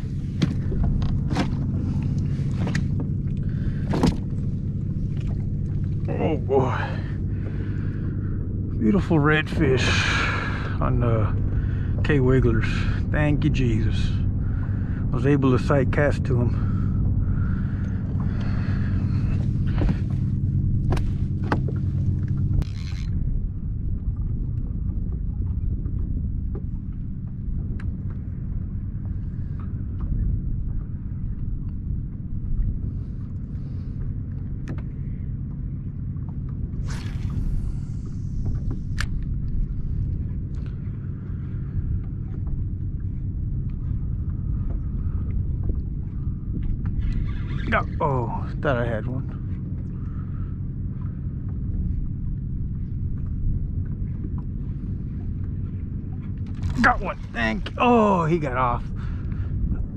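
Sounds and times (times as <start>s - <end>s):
wind buffeting microphone: 0.0s - 34.0s, 51.4s - 59.9s
low mechanical hum: 0.0s - 59.9s
knocks and clunks on deck: 0.3s - 1.9s, 20.8s - 21.8s.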